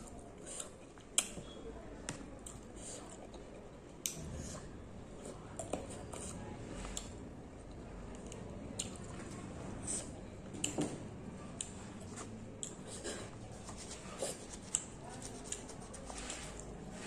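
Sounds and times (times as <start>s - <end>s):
fruit being chewed: 8.1s - 10.8s.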